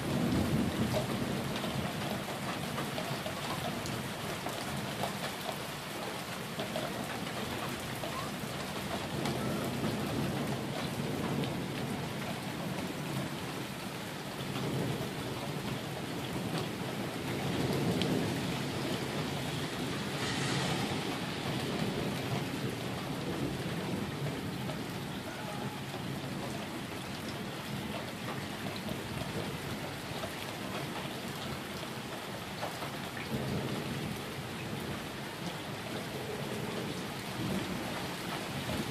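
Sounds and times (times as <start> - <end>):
low rolling thunder: 0.0 - 4.1, 6.9 - 30.1, 33.2 - 38.9
steady rain: 0.0 - 38.9
sharp hiss: 19.8 - 21.8.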